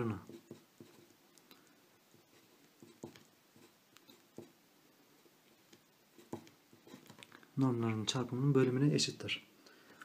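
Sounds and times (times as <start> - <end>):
pen writing on paper: 0.2 - 1.2, 2.1 - 4.6, 6.2 - 7.2.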